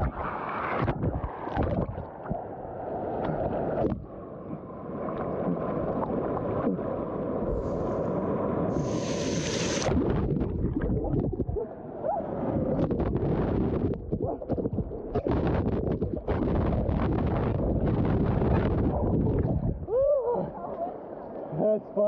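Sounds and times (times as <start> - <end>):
muffled underwater bubbling: 0.0 - 2.5, 8.7 - 20.0
water splashing: 8.7 - 11.7.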